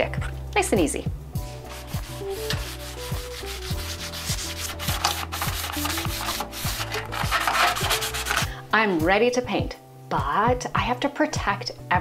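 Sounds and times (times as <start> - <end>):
soft background music with beat: 0.0 - 12.0
sanding sponge rasping on metal: 1.4 - 8.5.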